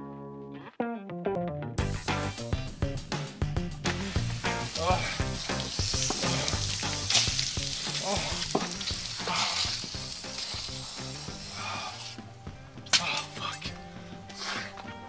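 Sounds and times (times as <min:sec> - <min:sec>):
water splashing on ground: 0:03.9 - 0:12.2
hose nozzle hissing: 0:03.9 - 0:12.4.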